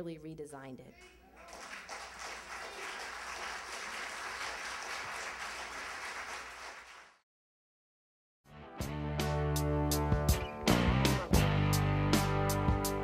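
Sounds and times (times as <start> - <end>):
audience applauding: 1.4 - 7.2.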